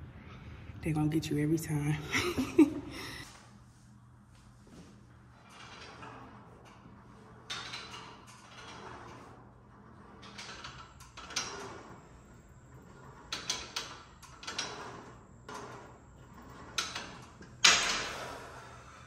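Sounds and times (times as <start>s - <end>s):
gym equipment clanking: 5.3s - 18.6s.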